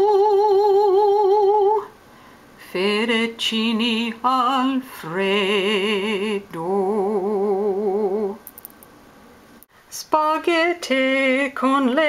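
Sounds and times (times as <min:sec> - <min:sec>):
person singing opera-style: 0:00.0 - 0:01.9, 0:02.6 - 0:08.4, 0:09.9 - 0:12.0.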